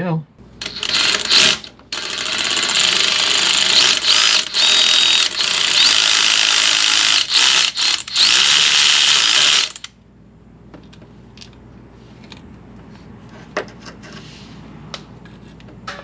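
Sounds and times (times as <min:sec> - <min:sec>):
ratchet spinning out bolts: 0:00.6 - 0:09.9.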